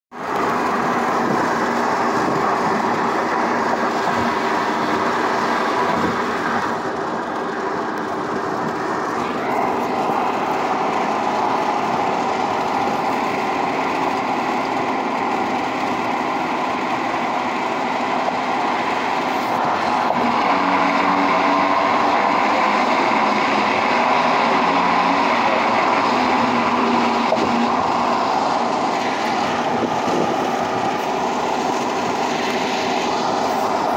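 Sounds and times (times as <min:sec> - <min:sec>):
tyres rolling on road: 0:00.1 - 0:33.9
wind rushing past car windows: 0:26.4 - 0:31.9.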